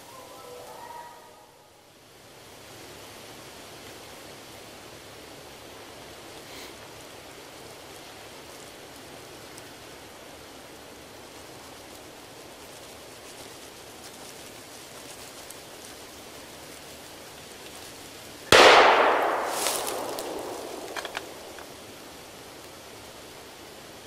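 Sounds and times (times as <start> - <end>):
faint woods hiss: 0.0 - 24.0
loud gunshot echoing: 18.5 - 21.8.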